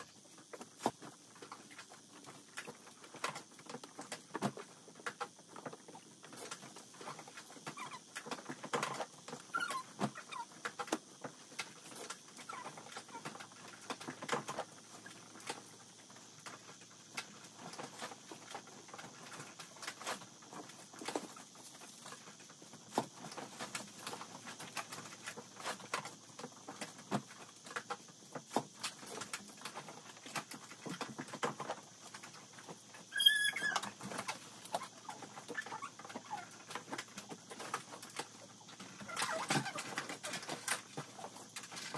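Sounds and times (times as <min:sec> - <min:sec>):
short high-pitched squeak: 0:33.1 - 0:33.9.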